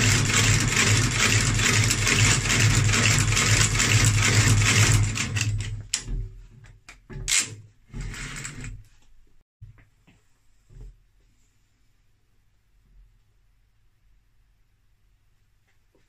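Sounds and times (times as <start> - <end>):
stitching machine clattering: 0.0 - 6.1.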